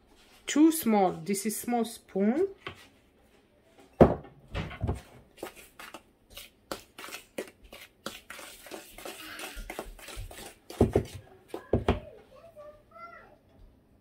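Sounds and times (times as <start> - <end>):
bowl thump: 4.0 - 5.0
spoon scraping through flour: 5.4 - 11.2.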